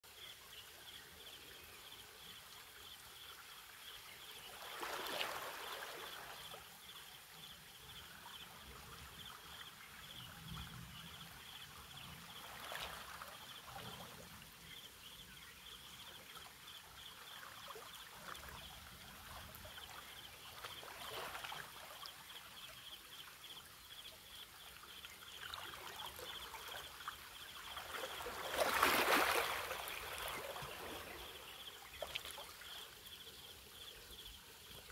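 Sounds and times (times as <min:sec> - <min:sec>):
waves lapping against rocks: 0:27.7 - 0:32.4.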